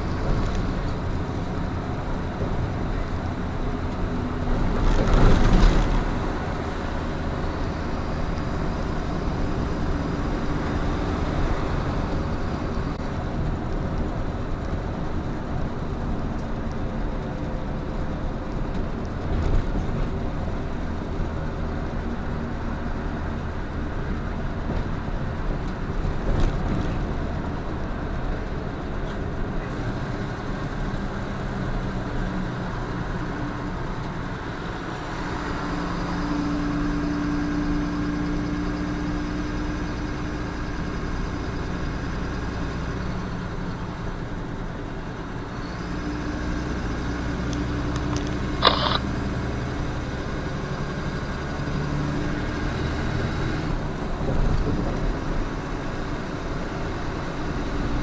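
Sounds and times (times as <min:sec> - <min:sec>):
truck engine droning: 0:00.0 - 0:58.0
tyres rumbling: 0:47.2 - 0:49.4.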